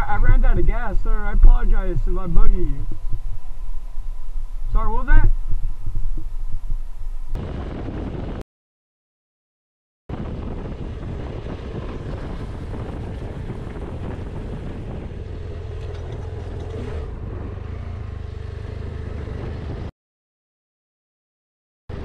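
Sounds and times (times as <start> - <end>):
wind noise on microphone: 0.0 - 8.4, 10.1 - 17.6, 19.0 - 19.9
motorcycle engine running: 10.1 - 19.9.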